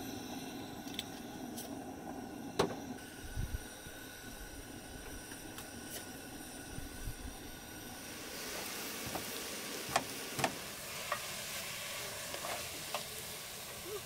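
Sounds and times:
food sizzling in a pot: 0:07.4 - 0:14.0.

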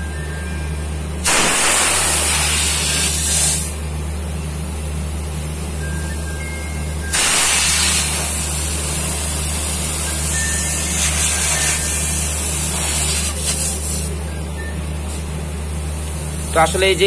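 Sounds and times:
gas hissing from pipe: 0:01.2 - 0:04.0, 0:07.1 - 0:14.3, 0:15.9 - 0:17.0.

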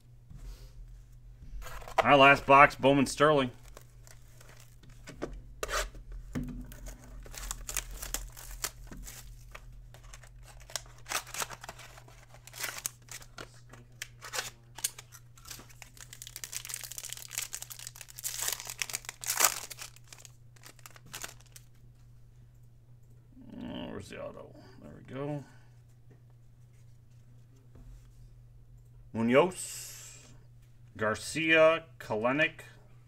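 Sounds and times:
low electrical hum: 0:00.0 - 0:33.0
cardboard and foil tearing: 0:06.7 - 0:21.7.

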